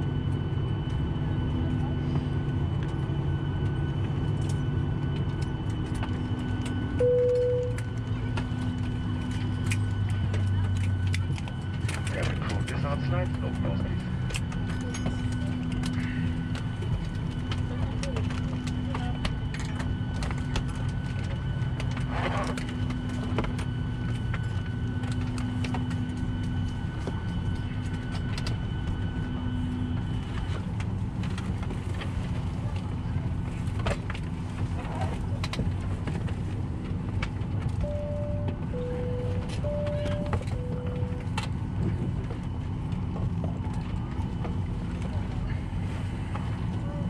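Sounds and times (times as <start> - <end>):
aircraft cabin rumble: 0.0 - 47.0
two-note tone: 7.0 - 7.9, 37.8 - 41.4.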